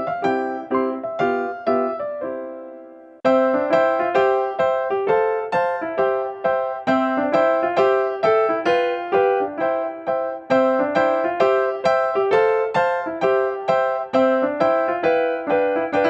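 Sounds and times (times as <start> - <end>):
gentle piano melody: 0.0 - 16.0.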